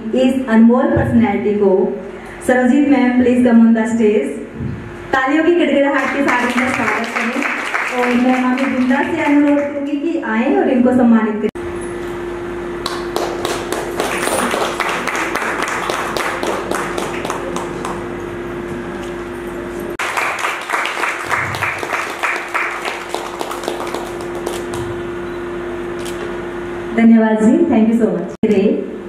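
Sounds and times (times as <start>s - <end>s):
steady hum: 0.0s - 29.0s
audience applause: 6.0s - 9.7s, 12.8s - 18.2s, 20.0s - 25.0s
rhythmic clapping: 6.0s - 9.8s, 12.8s - 18.2s, 20.0s - 25.0s.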